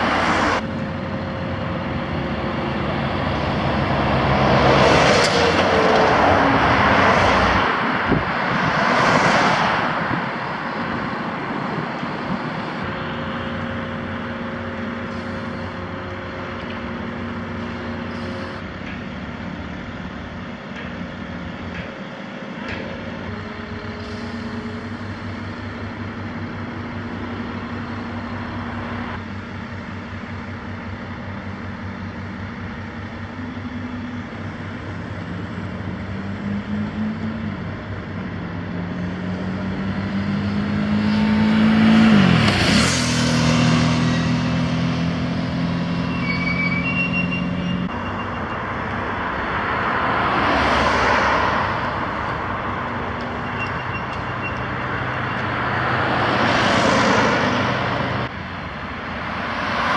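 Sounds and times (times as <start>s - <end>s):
diesel engines running: 0.0s - 59.9s
vehicle passing by: 38.8s - 45.9s.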